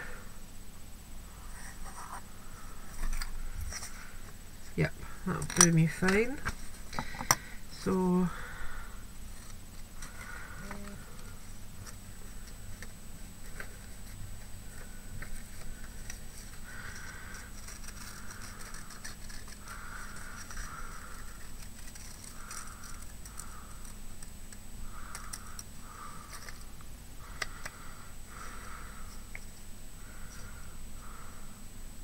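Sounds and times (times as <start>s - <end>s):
scissors cutting paper: 15.3s - 24.0s.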